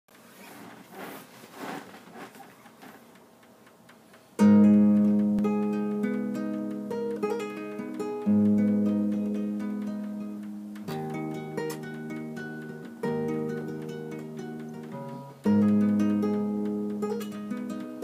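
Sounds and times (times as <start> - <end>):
faint rustle: 0.1 - 4.4
fingerstyle acoustic guitar: 4.4 - 18.0.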